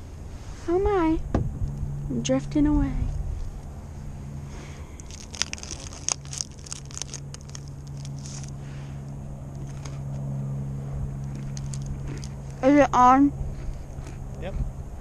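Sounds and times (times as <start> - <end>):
low hum: 0.0 - 15.0
plastic wrapper crinkling: 5.0 - 8.6, 11.2 - 12.4.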